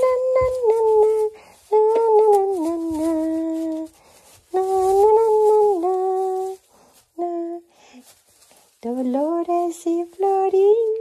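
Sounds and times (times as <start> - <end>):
hay rustling: 0.0 - 11.0
person humming a slow tune: 7.2 - 7.7.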